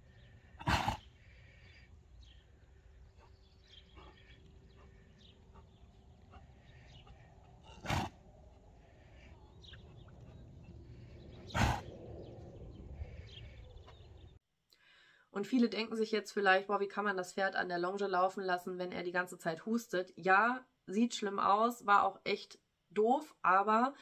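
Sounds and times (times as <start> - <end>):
horse coughing: 0.6 - 1.0, 7.0 - 8.2, 11.5 - 11.9.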